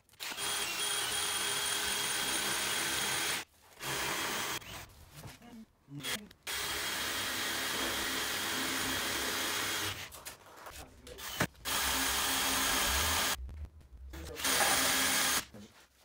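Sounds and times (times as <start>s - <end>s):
cordless drill running: 0.1s - 4.8s, 6.0s - 10.0s, 11.2s - 13.4s, 14.4s - 15.5s.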